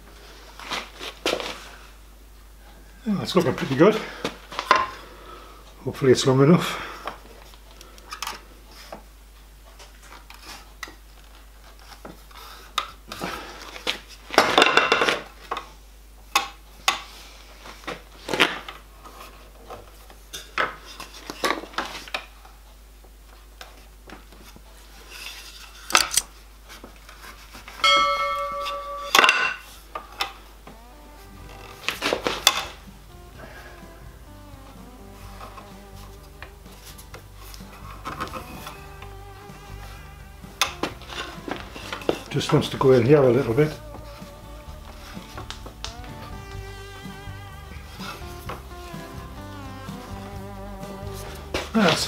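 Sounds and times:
wood knocking and scraping metal: 0:27.1 - 0:30.4, 0:31.4 - 0:32.9, 0:34.7 - 0:52.0
short ringing tone: 0:27.8 - 0:29.4.

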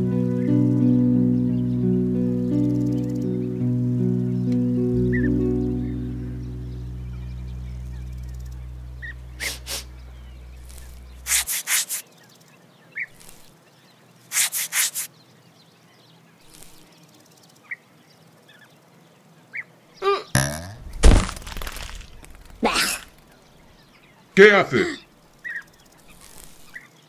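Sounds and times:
music: 0:00.0 - 0:11.2
grasshopper chirping: 0:08.2 - 0:12.2, 0:14.3 - 0:15.1.

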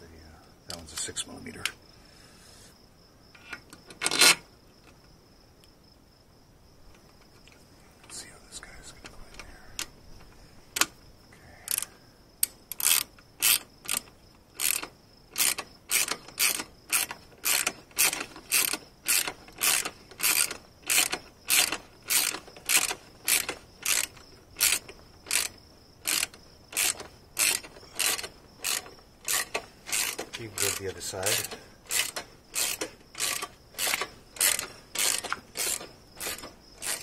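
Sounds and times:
socket ratchet clicking: 0:11.7 - 0:37.0.

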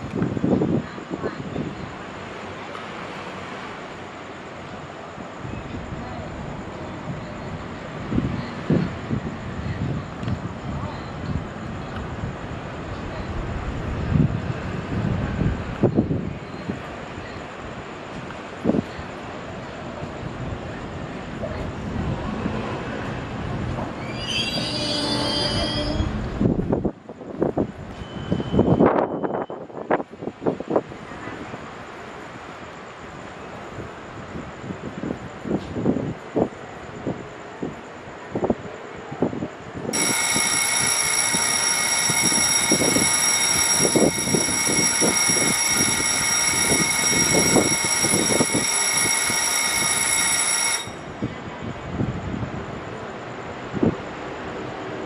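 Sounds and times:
electric train rumbling: 0:00.0 - 0:55.0
high-pitched brake squeal: 0:23.8 - 0:26.4, 0:27.9 - 0:29.6, 0:40.0 - 0:51.0
station departure bell ringing: 0:24.0 - 0:26.2, 0:39.9 - 0:51.4.

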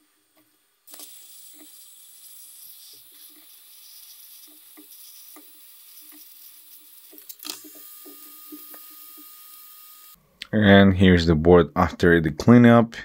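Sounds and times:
hot air gun hissing: 0:00.9 - 0:10.2.

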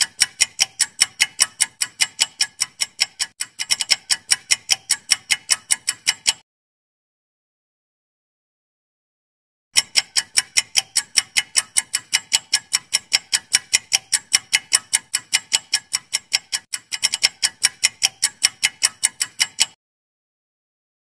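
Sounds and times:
clock ticking: 0:00.0 - 0:06.4, 0:09.8 - 0:19.8.

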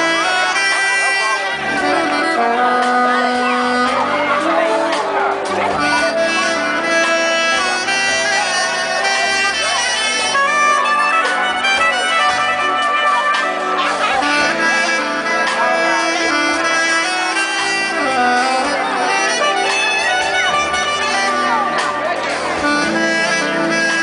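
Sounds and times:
drums: 0:00.0 - 0:24.0
electric bass: 0:00.0 - 0:24.0
soprano saxophone melody: 0:00.0 - 0:24.0.

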